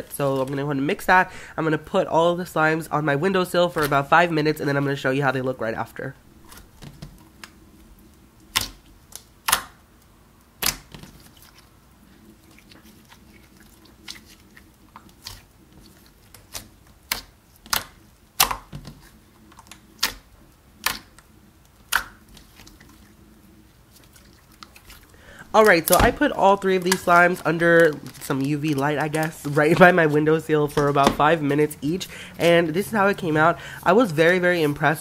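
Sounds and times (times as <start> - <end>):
slime clicking and popping: 8.5 - 9.8, 10.6 - 11.0, 16.4 - 18.7, 19.6 - 21.2, 21.9 - 22.4.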